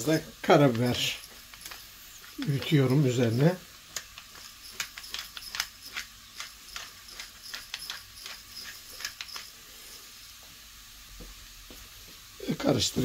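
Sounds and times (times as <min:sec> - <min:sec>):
faint sizzling in frying pan: 0:00.0 - 0:13.0
pepper mill grinding clicks: 0:00.6 - 0:09.6.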